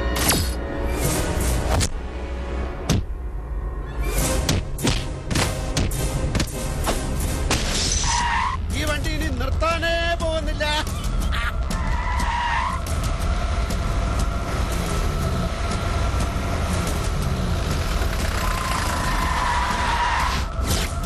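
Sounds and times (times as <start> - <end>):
tyres skidding and churning: 3.6 - 21.0
jeep engine running hard: 12.8 - 20.0.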